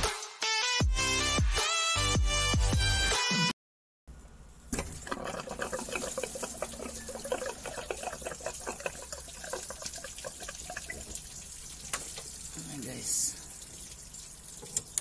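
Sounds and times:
coolant trickling and splashing: 4.6 - 15.0.

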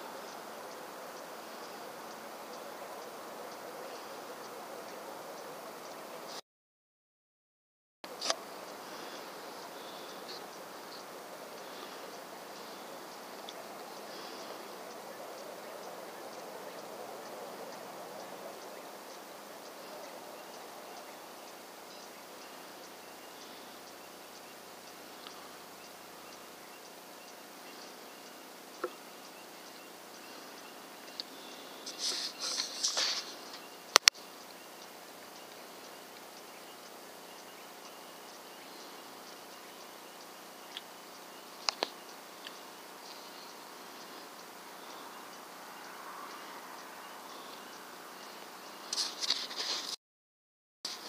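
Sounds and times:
insect chirps: 0.0 - 6.4, 8.1 - 49.8
outdoor hiss: 0.0 - 6.4, 8.1 - 50.0
faint click: 41.6 - 43.2.

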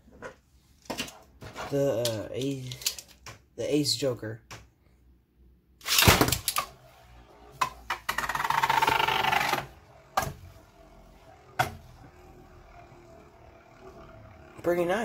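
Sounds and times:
spinning top rattling buzz: 5.8 - 15.0.

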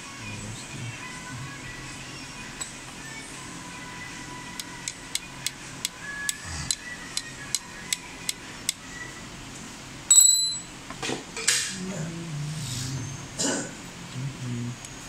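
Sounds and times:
high-pitched metallic ring: 10.1 - 10.8.

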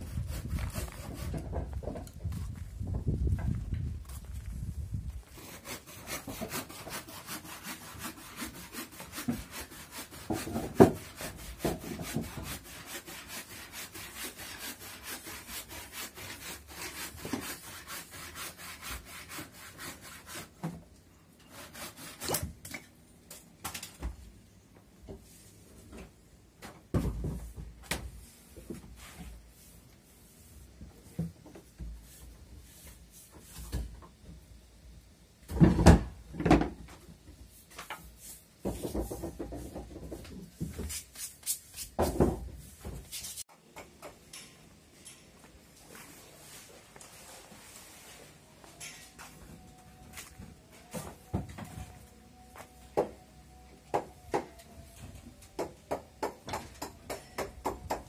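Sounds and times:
saw cutting wood: 5.3 - 20.6, 21.4 - 22.4.

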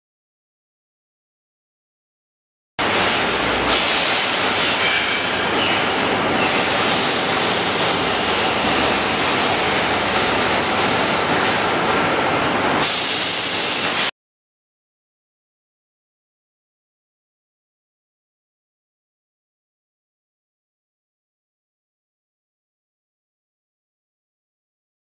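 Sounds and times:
factory machinery noise: 2.8 - 14.1
water spray and steam hissing: 2.8 - 14.1.

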